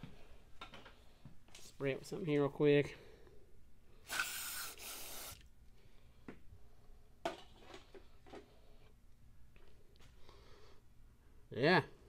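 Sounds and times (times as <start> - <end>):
aerosol spray hiss: 4.0 - 5.4.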